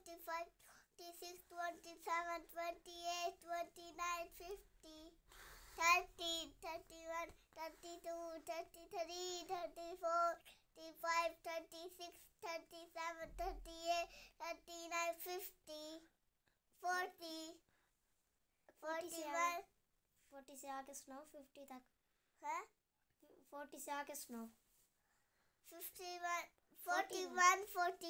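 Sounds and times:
girl counting in sing-song chant: 0.0s - 5.2s, 5.8s - 16.1s, 25.7s - 28.0s.

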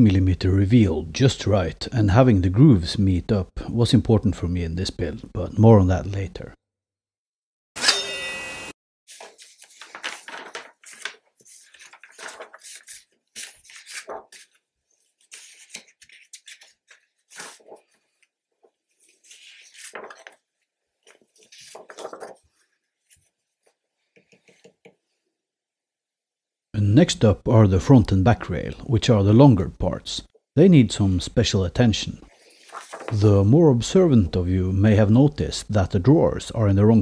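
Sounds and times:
paper rustling and sliding: 9.1s - 20.4s, 21.0s - 23.8s, 32.3s - 33.3s.

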